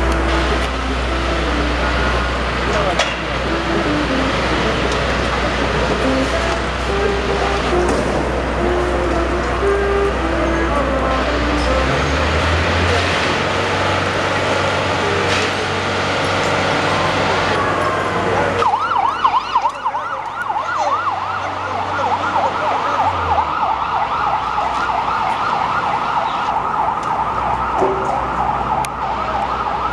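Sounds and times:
low engine hum: 0.0s - 18.6s
police siren yelping: 17.5s - 29.9s.

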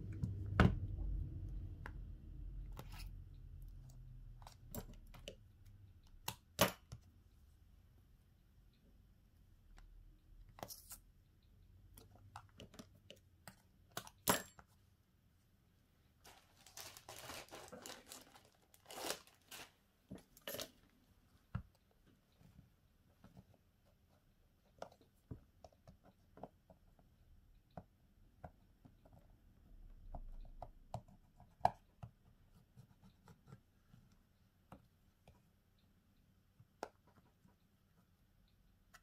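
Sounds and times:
rustling tearing sound: 16.2s - 19.8s.

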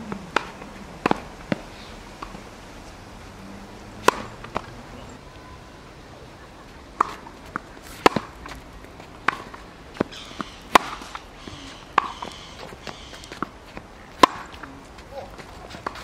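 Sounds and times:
tennis ball pops: 0.1s - 2.4s, 4.0s - 4.8s, 7.0s - 8.6s, 9.2s - 11.3s, 11.9s - 13.5s, 14.1s - 14.7s
footsteps on court: 7.0s - 16.0s.

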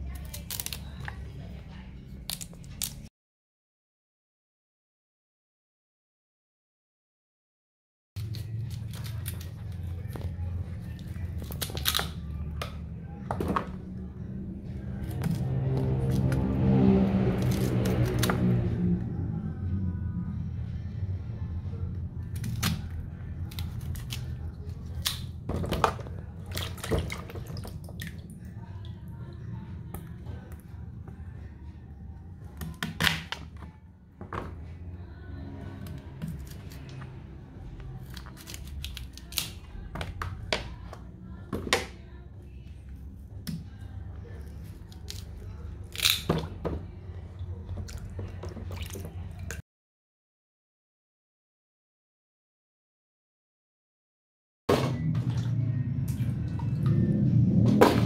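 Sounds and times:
pieces splashing into water: 25.0s - 28.3s.

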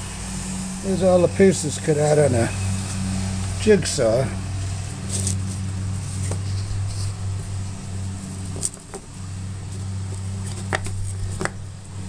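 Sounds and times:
steady low hum: 0.0s - 12.0s
wooden puzzle pieces knocking: 10.5s - 11.6s.

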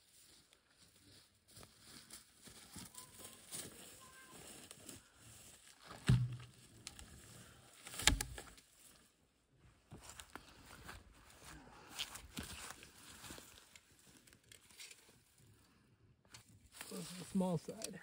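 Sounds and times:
footsteps in grass: 0.0s - 7.6s, 9.9s - 15.3s, 16.7s - 18.0s
heavy wooden thuds of logs dropping: 5.8s - 6.7s, 7.9s - 8.5s.

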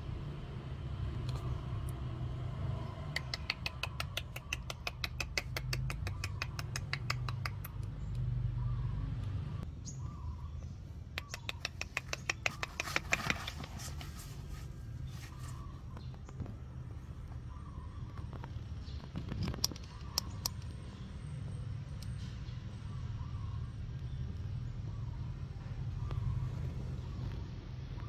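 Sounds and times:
fast sharp clicks: 3.1s - 8.2s, 11.2s - 13.8s, 18.2s - 20.8s.

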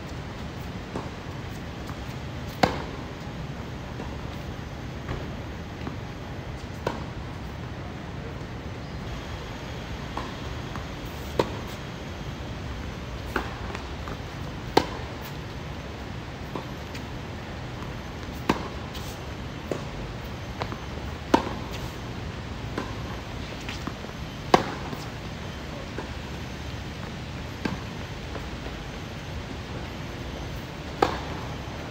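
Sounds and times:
steady background noise: 0.0s - 31.9s
tennis ball bouncing: 1.8s - 3.0s, 6.7s - 7.2s, 10.1s - 11.8s, 13.2s - 15.4s, 17.8s - 19.9s, 20.6s - 22.0s, 22.7s - 25.1s, 27.0s - 28.5s, 30.9s - 31.6s
tennis ball hitting racket: 2.5s - 3.0s, 13.2s - 15.4s, 18.2s - 19.9s, 20.6s - 22.0s, 22.7s - 23.9s, 24.5s - 25.1s, 30.9s - 31.5s.

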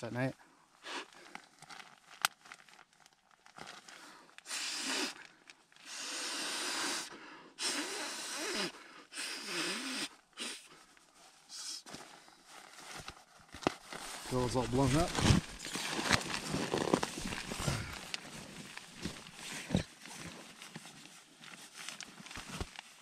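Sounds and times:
breath puffs into pillow valve: 4.4s - 10.9s, 11.5s - 12.0s.

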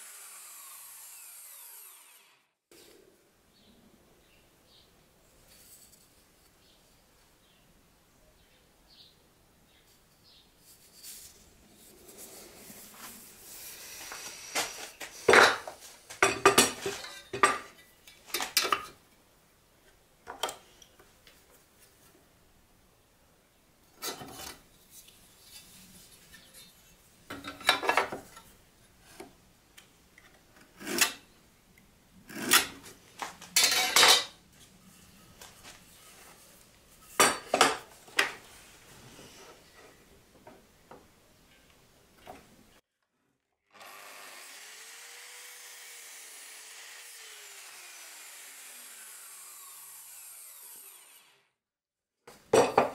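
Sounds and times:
tools set down on workbench: 15.3s - 17.7s, 33.5s - 34.4s, 52.3s - 52.9s.

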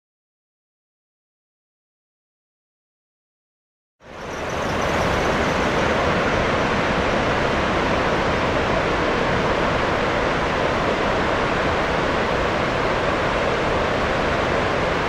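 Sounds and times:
water rushing through spillway: 4.1s - 15.0s.

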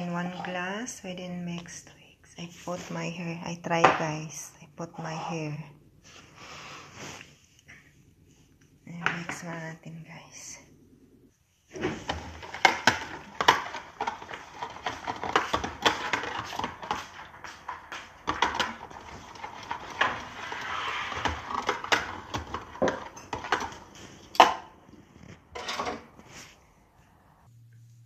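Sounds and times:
liquid churning: 12.0s - 24.2s.

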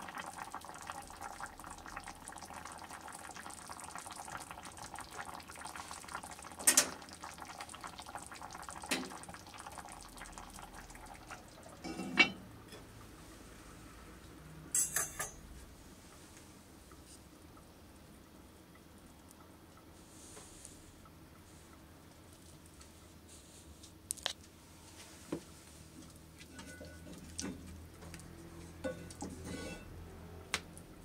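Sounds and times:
broth bubbling in a pot: 0.0s - 22.9s, 25.8s - 31.0s
pot lid clattering: 11.8s - 12.4s, 28.8s - 29.9s.

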